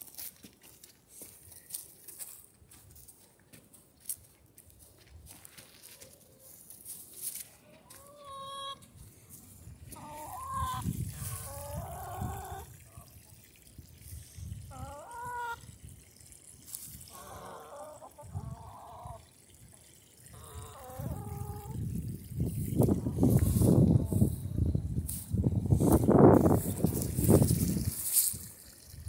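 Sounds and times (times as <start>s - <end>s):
hens clucking and squawking: 7.6s - 13.2s, 14.5s - 15.8s, 17.0s - 19.4s, 20.3s - 21.8s, 22.9s - 24.4s
faint water trickle: 8.8s - 29.0s.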